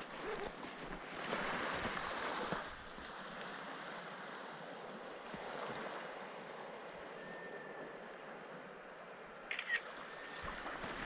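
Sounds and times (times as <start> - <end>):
waves washing on shingle shore: 0.0 - 4.8.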